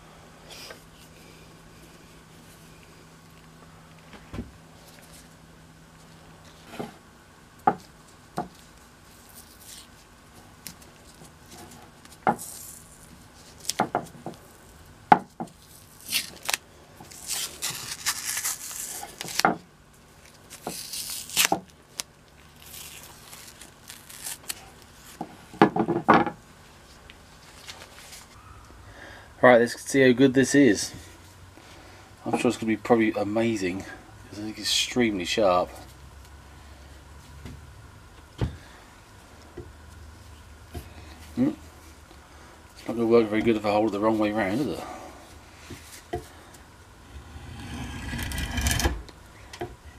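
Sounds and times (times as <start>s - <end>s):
tape peeling and tearing: 9.1s - 11.2s, 12.0s - 13.8s, 15.6s - 19.5s, 20.2s - 25.2s, 47.1s - 49.1s.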